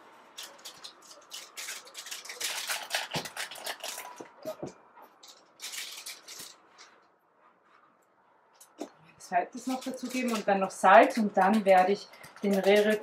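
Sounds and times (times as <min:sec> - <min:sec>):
hands crinkling a packet: 0:00.3 - 0:07.0, 0:09.6 - 0:13.0.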